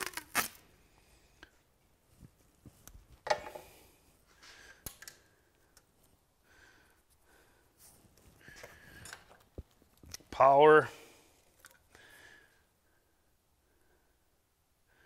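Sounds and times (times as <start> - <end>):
tape rustling: 0.0 - 0.7
hand handling noises: 1.4 - 6.3, 7.0 - 10.8.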